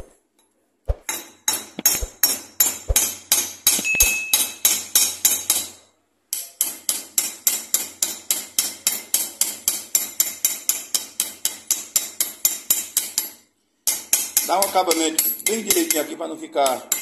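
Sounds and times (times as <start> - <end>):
hammer tapping rivet on anvil: 0.9 - 13.3.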